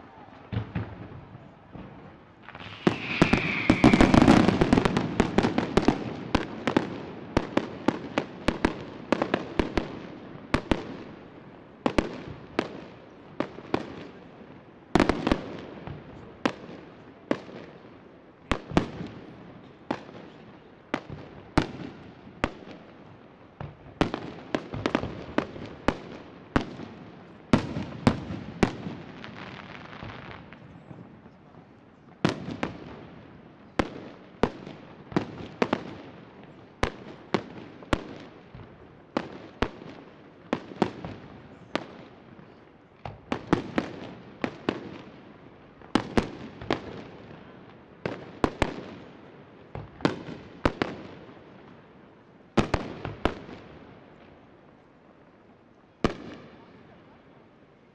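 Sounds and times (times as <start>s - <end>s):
fireworks crackling: 0.0s - 9.9s
fireworks bursting with bangs: 0.0s - 11.2s, 23.5s - 47.4s.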